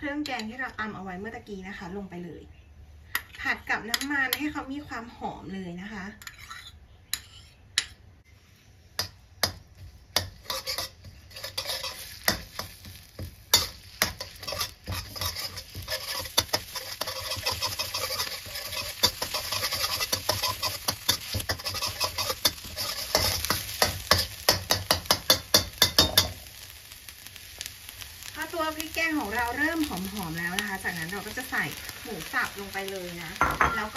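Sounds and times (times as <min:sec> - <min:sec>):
metal spatula scraping wok: 0:06.1 - 0:07.6, 0:10.2 - 0:26.3
paste sizzling in oil: 0:09.7 - 0:33.9.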